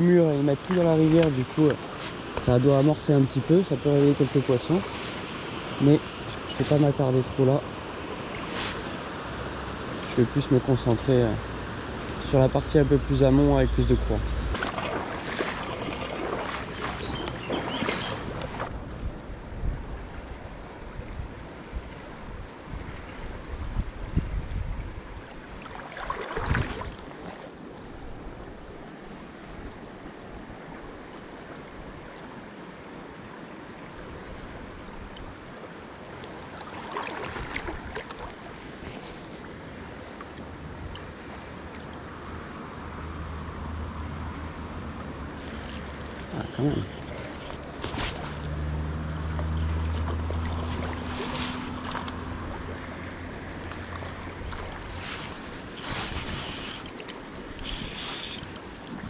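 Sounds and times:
river current rushing: 0:00.0 - 0:19.4, 0:25.1 - 0:59.0
splashing steps in water: 0:14.4 - 0:18.8, 0:47.0 - 0:52.6, 0:53.6 - 0:59.0.

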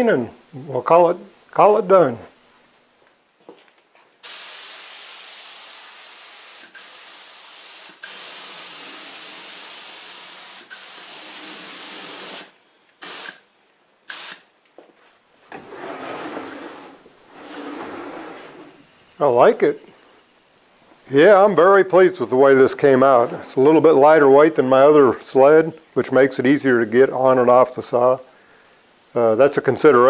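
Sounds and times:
spray gun hissing: 0:04.2 - 0:13.4, 0:14.1 - 0:14.4
sled rubbing on saw table: 0:15.5 - 0:18.8.

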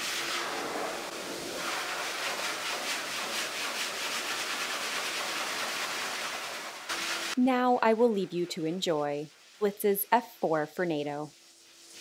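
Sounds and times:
dryer blowing air: 0:00.0 - 0:07.4.

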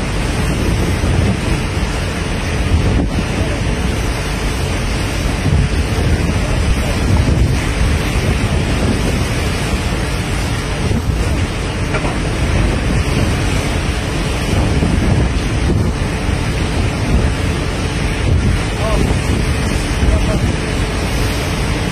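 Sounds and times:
rushing water from bow wave: 0:00.0 - 0:21.9
wind buffeting microphone: 0:00.0 - 0:21.9.

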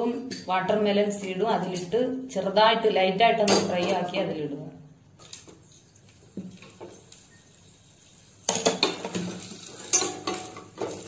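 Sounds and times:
almonds sizzling in hot ghee: 0:06.1 - 0:11.0.

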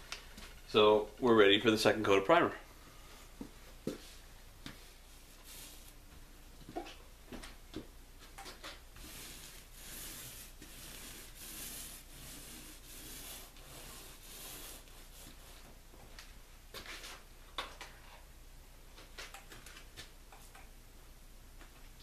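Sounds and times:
paint roller swishing on canvas: 0:04.9 - 0:06.0, 0:08.5 - 0:15.8.

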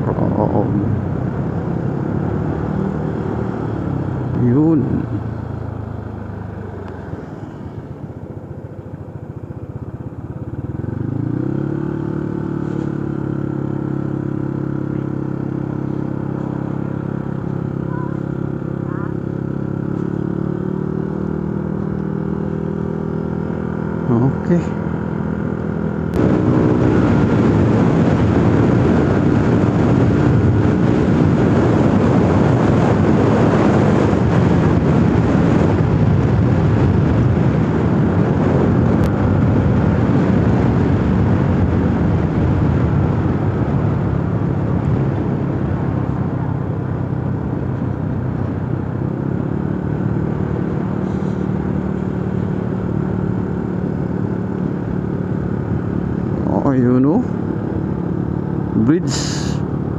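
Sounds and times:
motorcycle engine running: 0:00.0 - 0:59.9
wind and road noise: 0:00.0 - 0:59.9.

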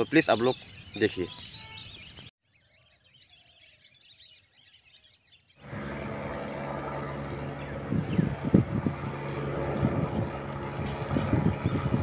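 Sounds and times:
birds chirping: 0:00.0 - 0:12.0
distant helicopter drone: 0:05.6 - 0:12.0.

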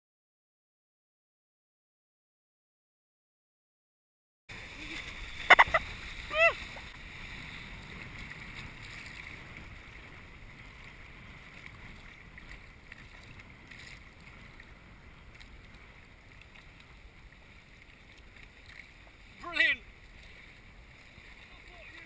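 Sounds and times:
small waves lapping: 0:04.5 - 0:22.0.

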